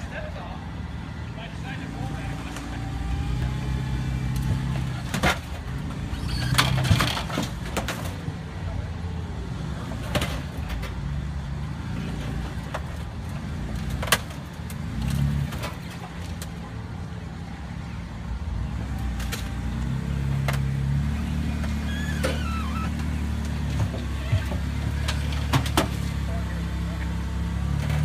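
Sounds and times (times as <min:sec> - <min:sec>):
engine revving: 0:01.4 - 0:07.2, 0:11.7 - 0:15.9, 0:18.5 - 0:28.0.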